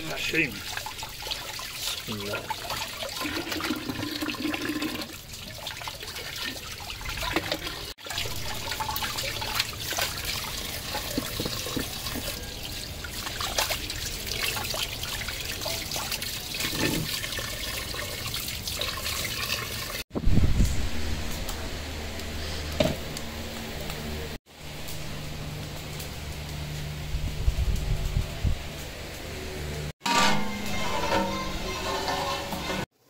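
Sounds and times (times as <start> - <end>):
water pouring into metal pot: 0.0 - 20.0.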